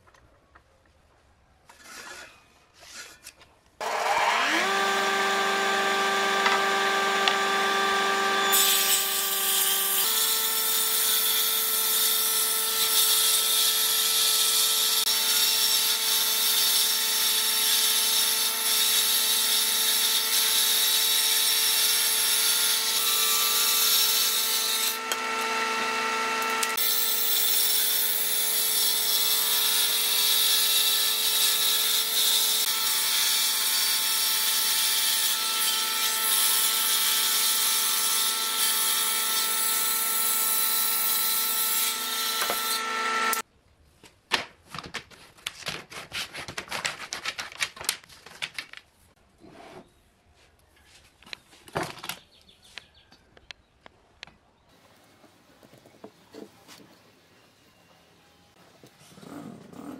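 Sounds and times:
woodworking machine hum: 0:03.8 - 0:09.3, 0:24.6 - 0:27.3, 0:41.8 - 0:43.4.

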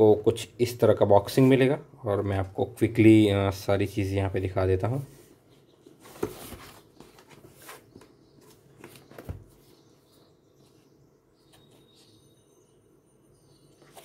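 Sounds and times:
cardboard box handling noise: 0:05.8 - 0:09.9.

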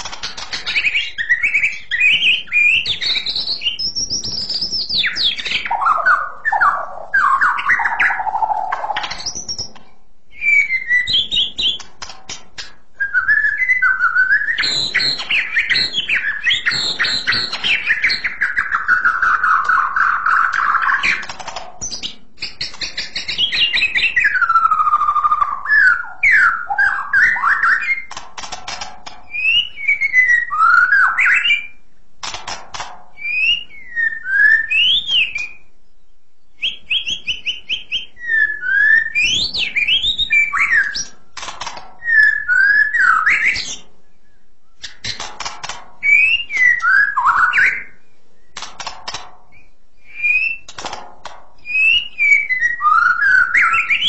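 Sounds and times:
bird rattling clicks: 0:00.0 - 0:01.0, 0:11.6 - 0:12.8, 0:20.5 - 0:23.5, 0:28.1 - 0:29.2, 0:32.2 - 0:33.0, 0:40.9 - 0:42.1, 0:44.8 - 0:45.9, 0:48.6 - 0:49.4, 0:50.7 - 0:51.4
bird singing whistled notes: 0:00.6 - 0:11.8, 0:13.0 - 0:28.2, 0:29.3 - 0:31.8, 0:33.2 - 0:41.2, 0:42.0 - 0:45.1, 0:46.0 - 0:48.6, 0:49.5 - 0:50.7, 0:51.6 - 0:54.0.

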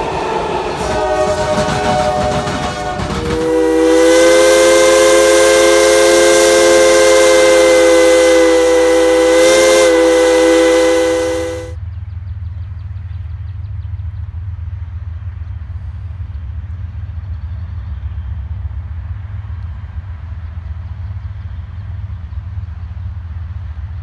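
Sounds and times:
steam locomotive whistle: 0:00.0 - 0:11.8.

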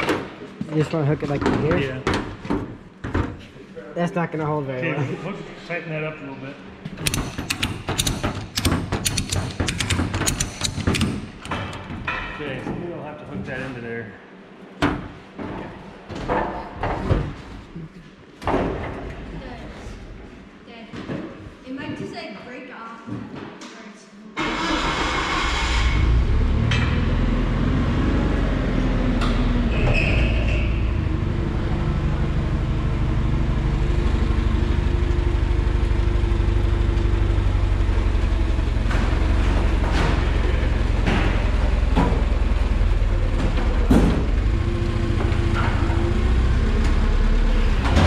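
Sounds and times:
forklift engine running: 0:07.0 - 0:11.9, 0:30.7 - 0:48.0
sharp knocks: 0:07.0 - 0:12.4.

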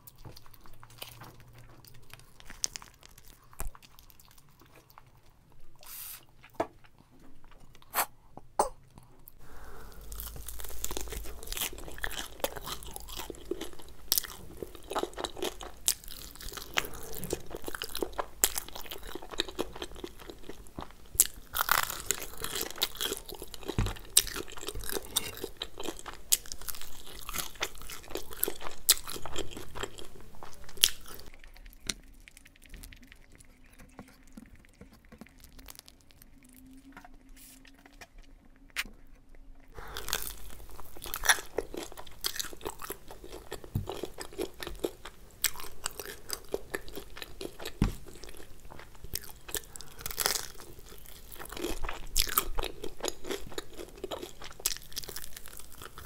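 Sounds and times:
crunching and chewing: 0:00.0 - 0:08.1, 0:08.8 - 0:56.0.

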